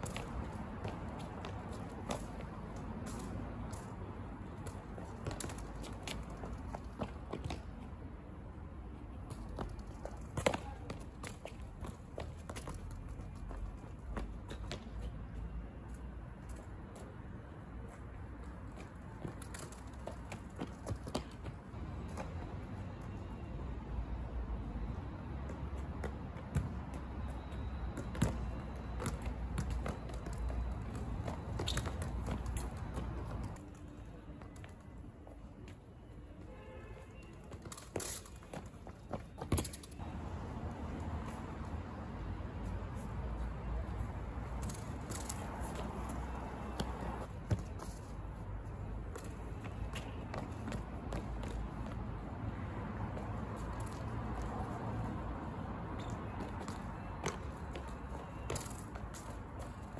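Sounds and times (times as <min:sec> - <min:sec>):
football kicked on stone paving: 0:09.3 - 0:14.9, 0:28.0 - 0:33.6, 0:37.5 - 0:40.0, 0:46.7 - 0:48.0, 0:49.1 - 0:52.0
football taps on stone paving: 0:37.5 - 0:39.9, 0:49.1 - 0:52.0.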